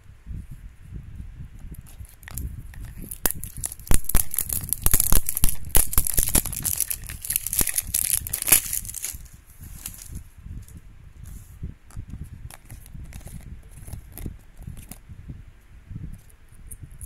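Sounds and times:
wrapper tearing and crinkling: 2.1 - 10.2.

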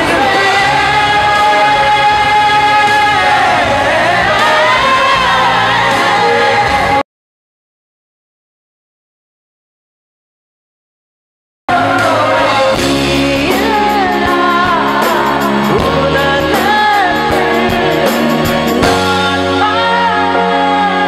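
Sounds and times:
film song with band over pa: 0.0 - 7.0, 11.7 - 21.0.

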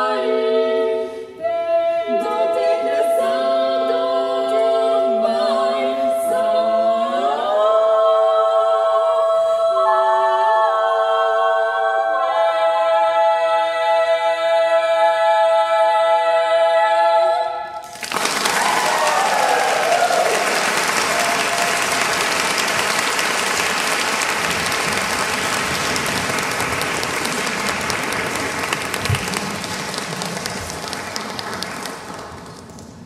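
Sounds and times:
women singing a cappella chord: 0.0 - 17.8
audience applauding: 17.8 - 33.0.

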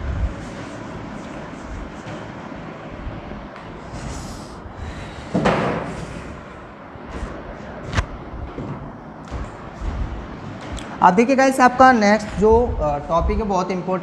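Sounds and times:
duster rubbing whiteboard: 0.0 - 13.6
loud thump: 5.3 - 6.1, 7.2 - 10.8.

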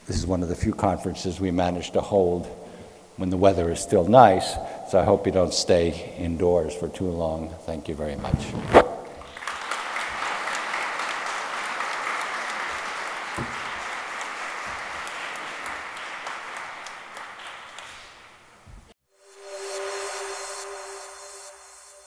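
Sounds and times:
audience applauding: 9.2 - 18.5.

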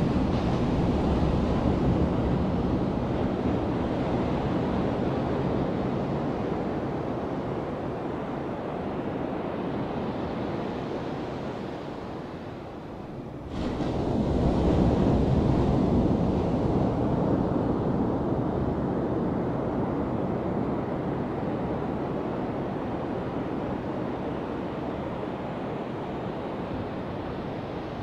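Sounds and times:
ocean wave breaking on sand: 13.5 - 16.4.

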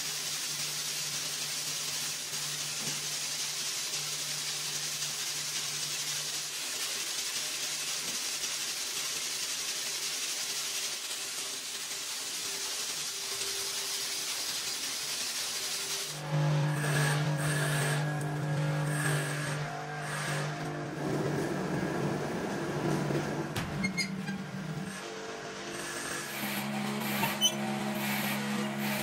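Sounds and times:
paint spray gun hissing: 0.0 - 16.3
loud machine hum: 15.9 - 29.0.

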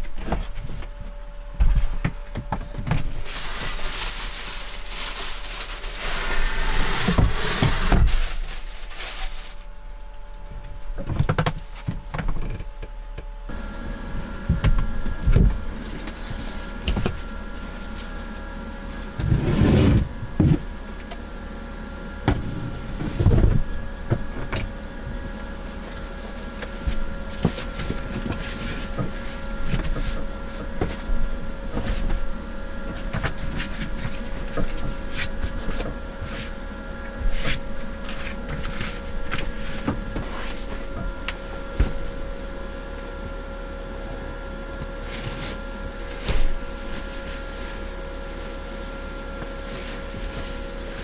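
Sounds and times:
steady hum: 0.0 - 51.0
sleeping mat rustling: 45.0 - 51.0.

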